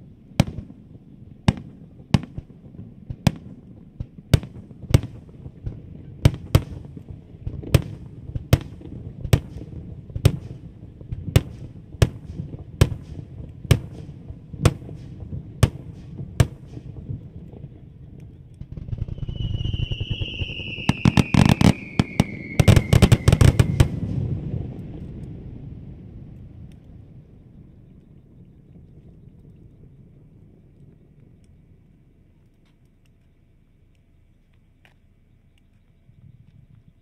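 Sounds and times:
crackling firework bangs: 0.0s - 31.9s
firework shells bursting: 1.5s - 25.4s
firework whistle falling in pitch: 18.7s - 24.2s.

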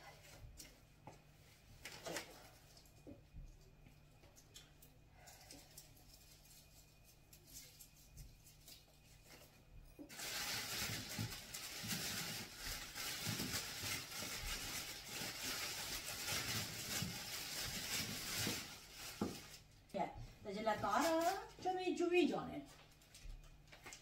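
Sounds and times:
plastic bag rustling: 5.2s - 21.9s.

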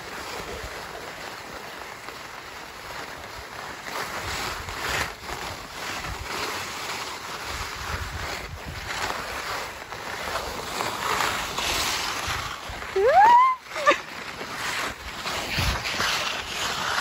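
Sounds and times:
wind rushing over microphone: 7.5s - 9.2s.

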